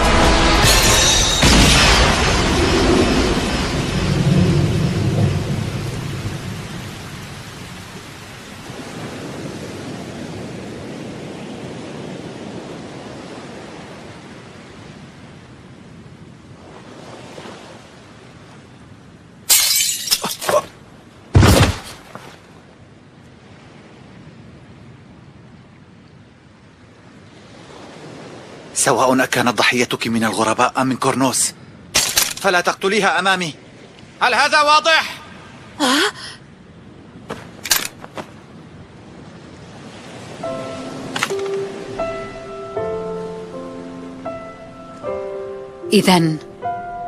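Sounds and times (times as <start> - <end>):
sharp crashes: 0.0 - 5.8
steady rain: 0.0 - 19.6, 20.4 - 45.2
thunder rumbling: 1.4 - 8.0.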